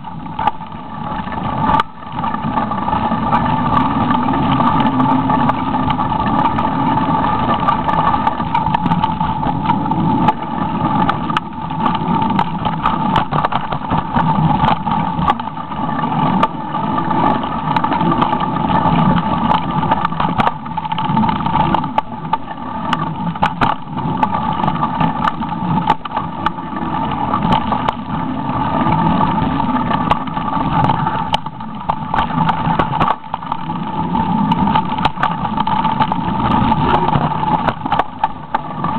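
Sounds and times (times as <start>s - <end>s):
bike rattling over bumps: 0.0s - 38.9s
wind and tyres rumbling: 0.0s - 38.9s.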